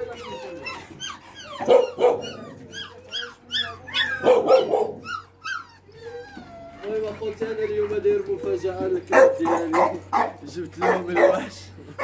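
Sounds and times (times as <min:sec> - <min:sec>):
dogs yelping: 0:00.0 - 0:12.0
dogs barking: 0:00.1 - 0:05.6, 0:08.9 - 0:12.0.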